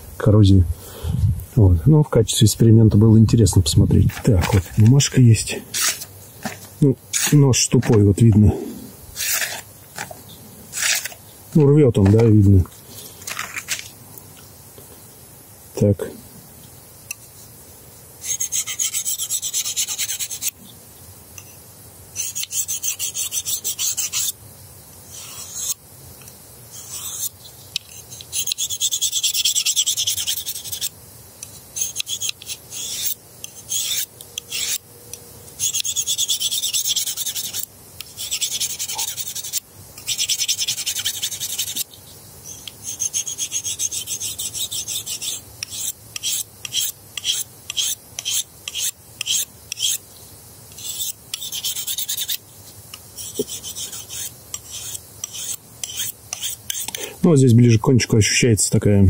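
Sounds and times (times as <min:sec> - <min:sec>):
knife blade scraping on hone: 0:05.7 - 0:08.0, 0:09.2 - 0:10.1, 0:10.7 - 0:11.2, 0:25.1 - 0:25.8, 0:26.8 - 0:30.9, 0:31.8 - 0:34.8, 0:35.6 - 0:41.8, 0:42.8 - 0:50.0, 0:50.7 - 0:52.4, 0:53.2 - 0:57.0.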